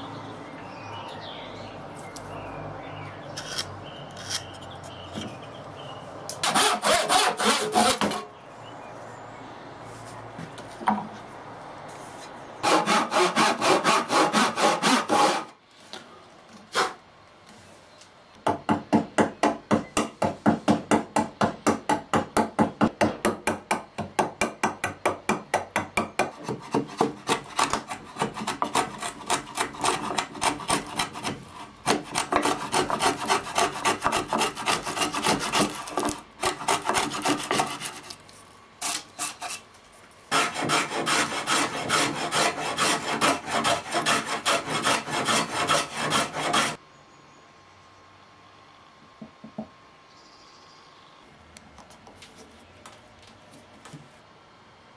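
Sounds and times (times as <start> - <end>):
chisel and plane scraping wood: 6.4 - 8.3, 11.9 - 15.5, 26.4 - 38.2, 38.8 - 39.7, 40.3 - 46.8
hand saw strokes: 6.4 - 8.3, 11.9 - 15.6, 16.7 - 17.0, 26.3 - 38.2, 38.8 - 39.7, 40.3 - 46.8.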